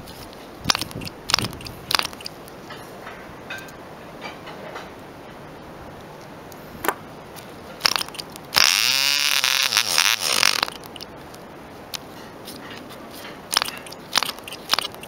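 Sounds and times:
propeller flicking clicks: 0.7s - 2.4s, 9.6s - 11.1s
model engine running: 7.8s - 10.8s.

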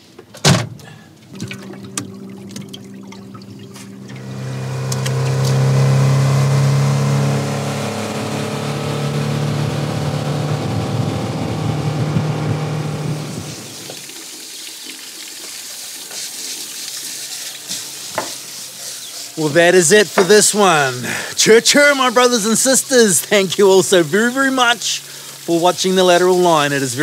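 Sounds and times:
water and wind noise: 1.3s - 7.4s, 9.1s - 14.0s
boat motor running: 1.3s - 13.8s.

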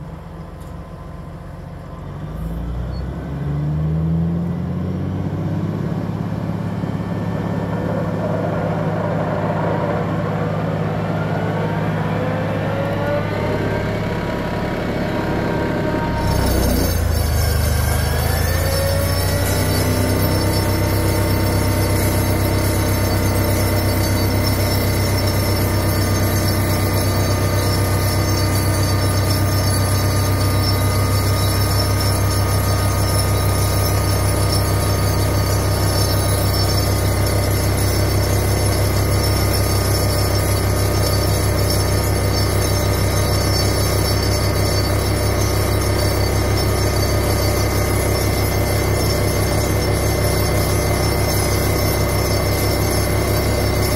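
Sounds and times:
vibratory pile driver humming: 4.0s - 53.9s.

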